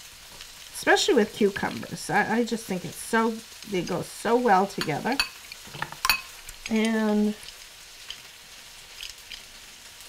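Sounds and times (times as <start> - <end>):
low steady hiss: 0.0 - 10.0
person speaking: 0.8 - 5.3, 6.7 - 7.4.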